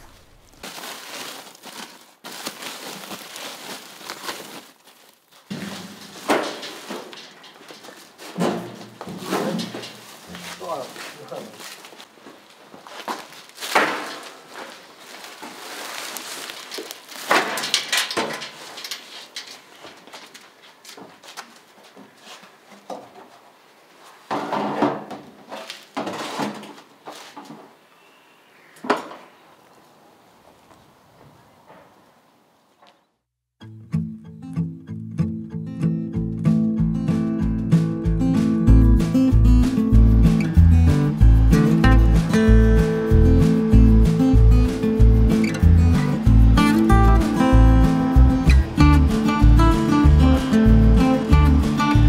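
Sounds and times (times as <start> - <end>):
sacks rustling and knocking: 0.0 - 27.8.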